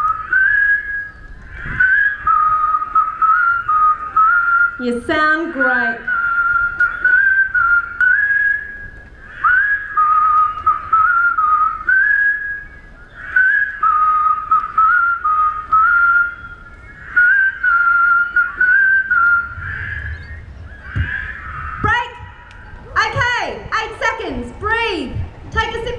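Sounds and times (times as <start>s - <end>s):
person whistling held notes: 0.0s - 4.8s, 6.0s - 12.7s, 13.4s - 19.6s
crowd whistling: 0.0s - 23.2s.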